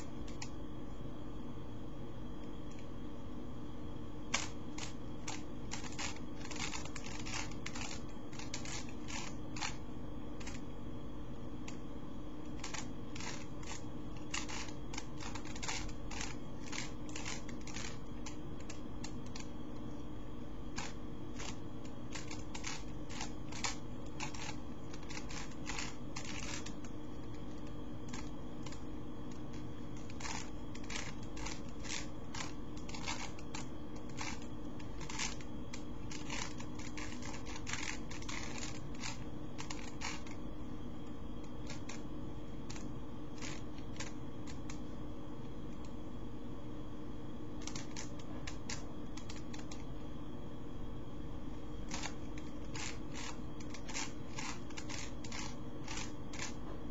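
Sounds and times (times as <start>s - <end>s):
steady low hum: 0.0s - 56.9s
plastic cube clicking: 4.3s - 9.8s, 12.6s - 19.5s, 20.8s - 40.4s, 43.4s - 44.8s, 47.6s - 49.8s, 51.9s - 56.6s.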